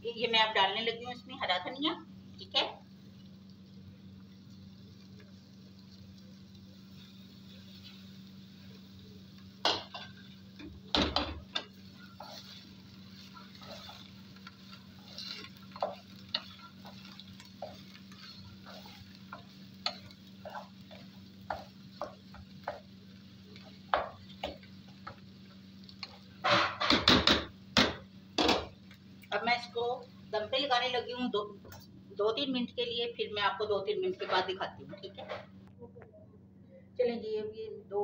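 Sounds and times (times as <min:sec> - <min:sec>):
steady low hum: 0:00.0 - 0:38.0
spatula scraping a pot: 0:11.4 - 0:22.9.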